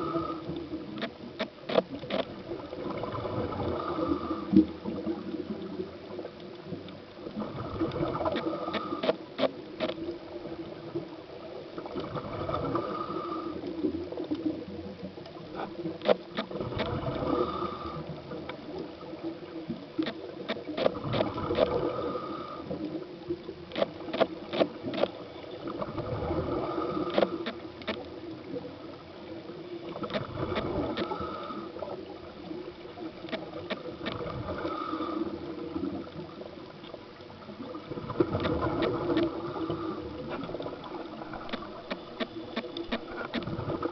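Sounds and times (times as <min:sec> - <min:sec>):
regulator inhale hiss: 0:00.0 - 0:00.8, 0:03.6 - 0:04.9, 0:08.4 - 0:09.3, 0:12.6 - 0:13.9, 0:17.2 - 0:18.4, 0:21.7 - 0:23.0, 0:26.5 - 0:27.6, 0:31.0 - 0:32.0, 0:34.5 - 0:35.8, 0:39.3 - 0:40.4
sharp clicks: 0:23.7 - 0:25.2.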